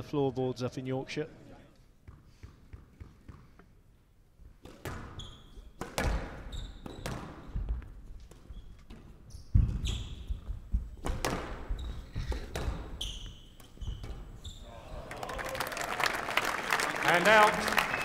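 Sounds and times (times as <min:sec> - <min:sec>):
shoe squeaks on court floor: 0:04.9 - 0:10.6, 0:11.3 - 0:14.7
squash ball cracking off rackets: 0:05.8 - 0:09.0.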